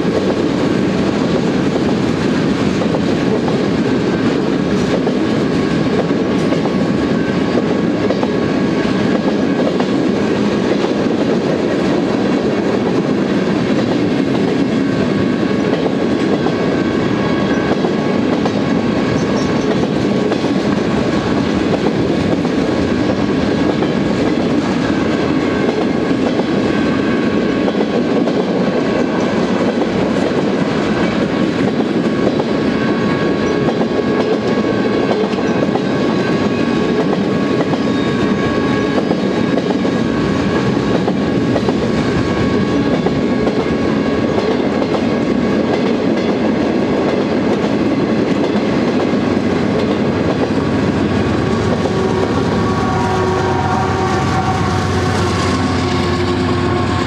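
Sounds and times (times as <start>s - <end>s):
freight train rumbling past: 0.0s - 57.0s.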